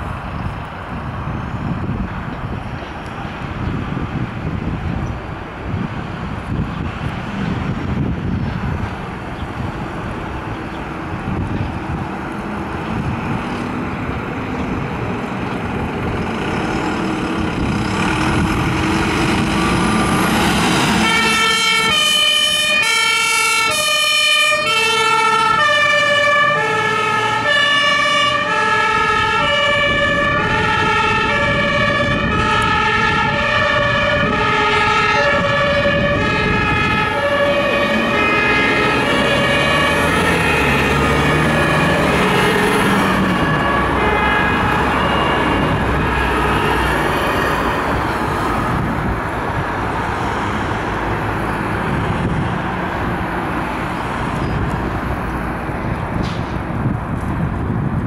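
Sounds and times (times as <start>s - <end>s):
fire truck engine: 0.0s - 58.0s
two-tone siren: 20.6s - 48.8s.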